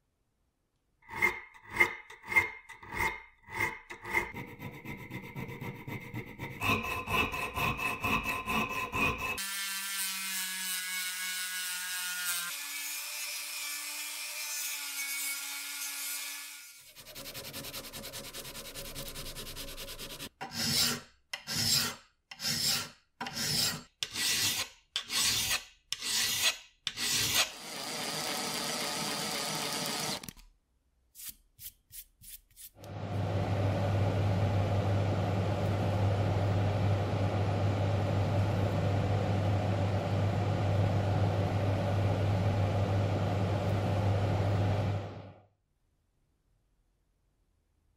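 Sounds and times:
hand file scraping metal: 1.0s - 9.6s, 16.8s - 27.6s.

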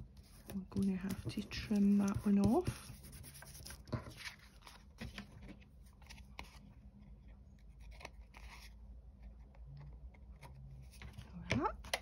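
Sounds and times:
paper handling: 0.2s - 6.7s.

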